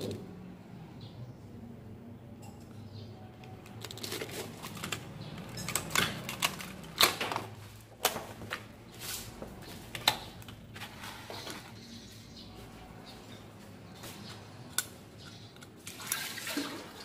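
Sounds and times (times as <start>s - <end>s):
plastic packaging crackling: 3.6s - 11.7s.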